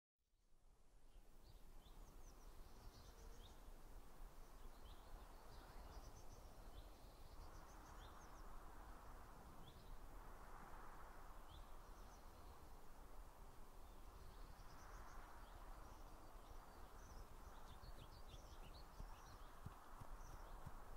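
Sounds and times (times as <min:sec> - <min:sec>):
soft rushing hiss: 0:00.9 - 0:20.9
small birds chirping: 0:13.8 - 0:20.9.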